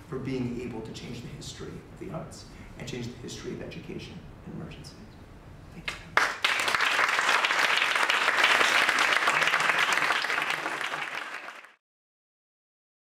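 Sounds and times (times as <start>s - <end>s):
audience applauding: 6.2s - 11.8s.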